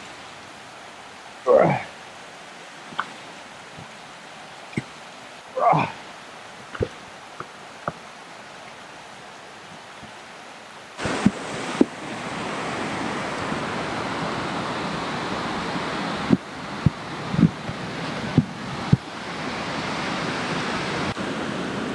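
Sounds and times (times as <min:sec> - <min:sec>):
steady rushing hiss: 0:00.0 - 0:21.9.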